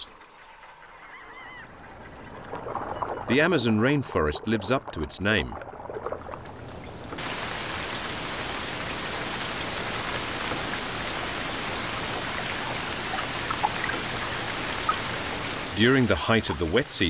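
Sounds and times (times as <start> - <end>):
heavy rain on water: 6.5 - 17.0.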